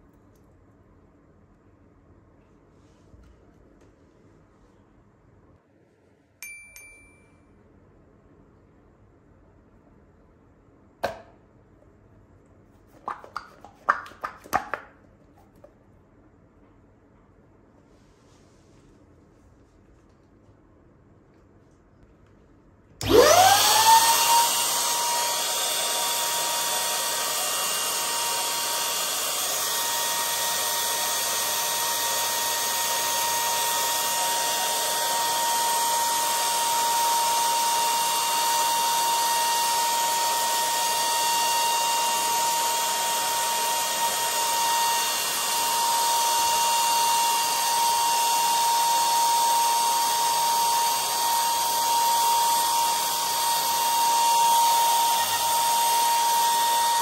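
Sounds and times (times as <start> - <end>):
electric pump motor whine: 23.0 - 57.0.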